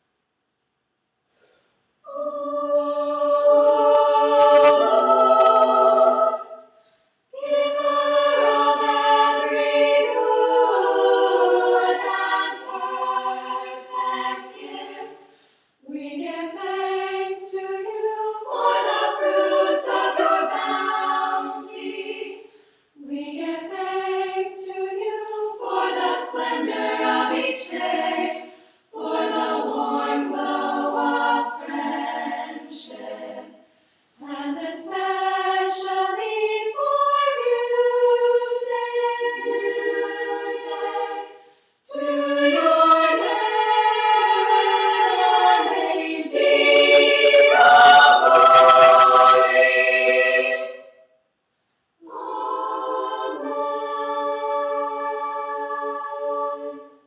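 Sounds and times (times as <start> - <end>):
women's choir singing a cappella: 2.0 - 51.0, 52.0 - 57.0.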